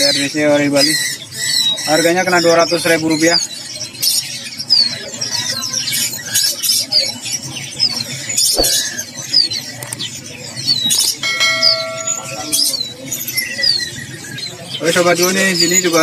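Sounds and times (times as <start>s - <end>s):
caged birds chirping: 0.0s - 16.0s
steady pitched tone: 11.2s - 12.8s.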